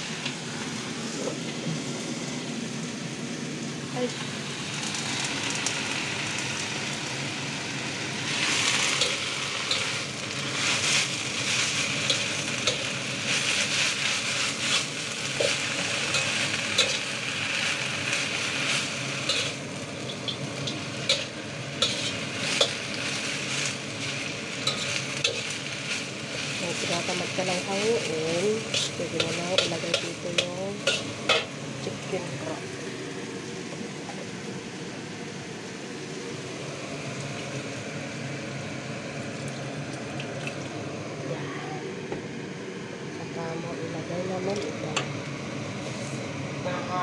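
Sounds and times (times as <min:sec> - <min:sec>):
greens sizzling in a wok: 0:00.0 - 0:47.0
metal spatula scraping pan: 0:28.7 - 0:31.5.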